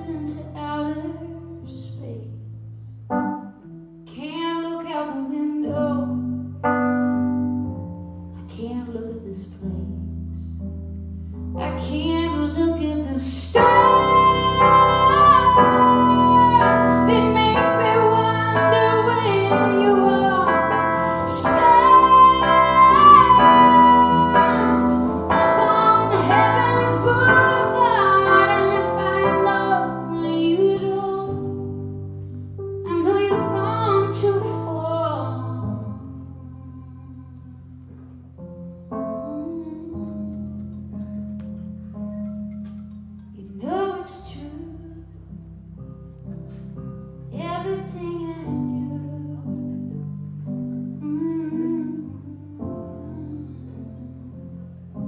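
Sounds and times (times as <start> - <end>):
woman singing: 0.0 - 2.5, 4.1 - 6.5, 8.4 - 10.6, 11.6 - 31.8, 32.8 - 38.2, 39.0 - 40.6, 43.4 - 45.2, 47.3 - 50.0, 51.0 - 54.7
keyboard chords: 3.0 - 4.0, 10.7 - 36.0.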